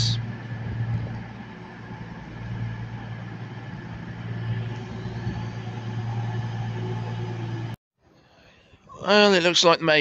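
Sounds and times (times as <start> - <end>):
diesel train engines idling: 0.0 - 7.8.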